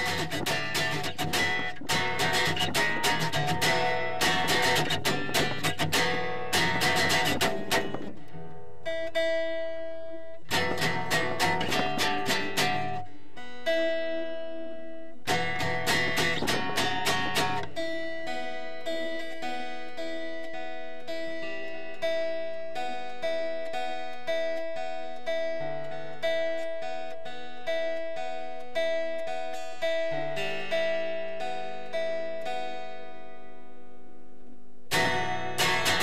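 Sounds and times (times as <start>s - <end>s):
acoustic guitar strummed chords: 0.0s - 36.0s
picked guitar notes: 0.0s - 36.0s.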